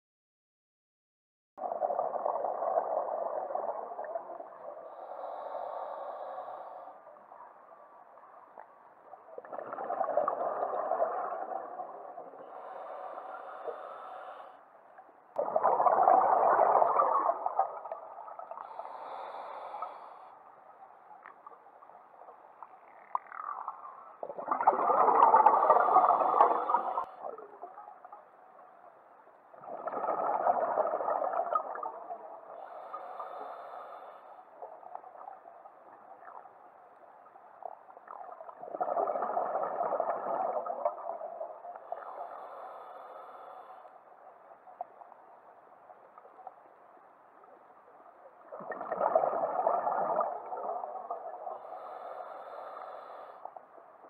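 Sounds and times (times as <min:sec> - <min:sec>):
exhaled bubbles burbling: 0:01.6 - 0:05.0, 0:09.4 - 0:12.7, 0:15.4 - 0:18.8, 0:23.0 - 0:27.8, 0:29.6 - 0:32.4, 0:38.2 - 0:41.6, 0:48.5 - 0:51.5
regulator inhale hiss: 0:04.8 - 0:07.0, 0:12.4 - 0:14.7, 0:18.6 - 0:20.5, 0:32.6 - 0:34.5, 0:41.9 - 0:44.0, 0:51.6 - 0:53.6.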